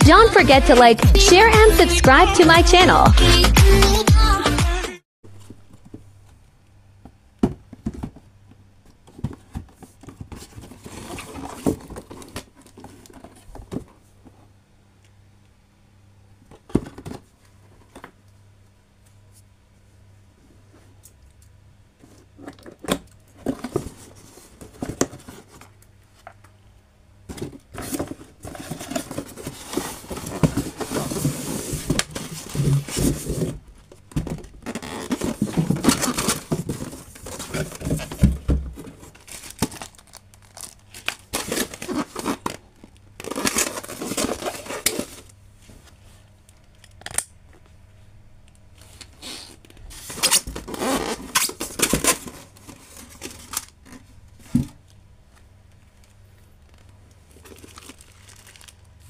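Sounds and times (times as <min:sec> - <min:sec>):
cardboard and styrofoam scraping: 0:27.8 - 0:33.6, 0:34.6 - 0:39.6, 0:43.2 - 0:45.3
plastic wrapping crinkling: 0:34.6 - 0:45.3, 0:55.9 - 0:59.0.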